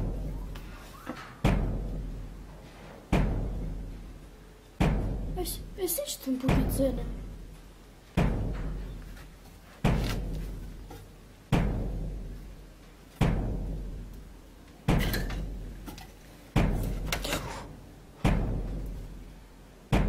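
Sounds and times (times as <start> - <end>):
deep drum beats: 1.4 - 2.5, 3.1 - 4.0, 4.8 - 5.4, 6.4 - 7.5, 8.1 - 9.0, 11.5 - 12.5, 13.2 - 14.3, 18.2 - 19.0.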